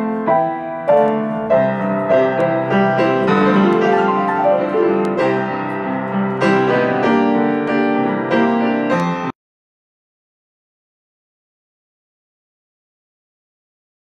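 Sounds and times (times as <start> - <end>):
grand piano playing: 0.0 - 9.4.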